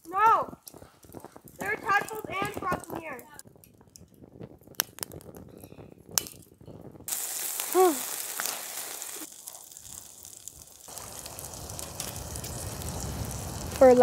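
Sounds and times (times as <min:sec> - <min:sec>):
twigs crackling in stove: 0:00.0 - 0:14.0
hot dogs sizzling: 0:06.9 - 0:14.0.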